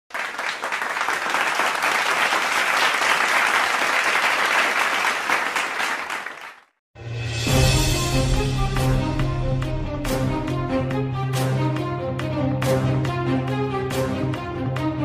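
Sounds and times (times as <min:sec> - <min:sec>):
crowd applause: 0:00.1 - 0:06.8.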